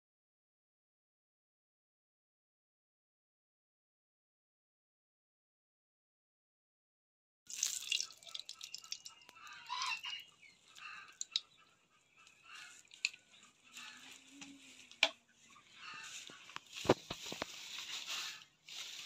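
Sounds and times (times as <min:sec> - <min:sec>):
hot oil crackling: 0:07.5 - 0:09.6.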